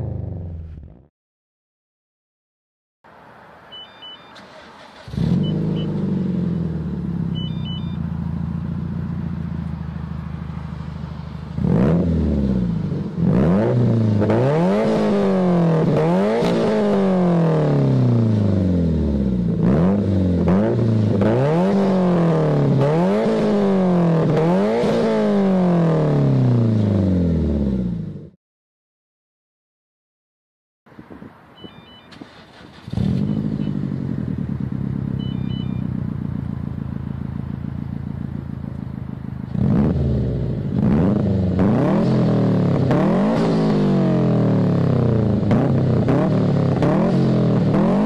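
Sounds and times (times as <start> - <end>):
short beeps: 3.7 - 4.7, 5.4 - 6.0, 7.3 - 8.1, 31.5 - 32.3, 35.1 - 36.0
car engine starting and idling: 3.7 - 23.6, 31.7 - 48.0
car engine revving: 4.4 - 28.4, 32.2 - 48.0.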